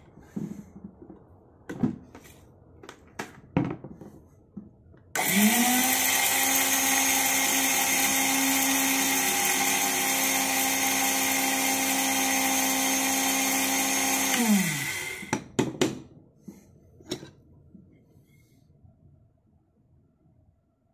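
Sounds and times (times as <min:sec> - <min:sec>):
electric spice grinder running: 0:05.2 - 0:15.3.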